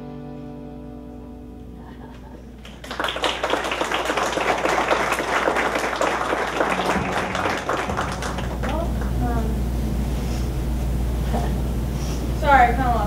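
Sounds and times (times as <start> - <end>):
audience applauding: 2.1 - 9.2
guitar note: 6.8 - 11.2.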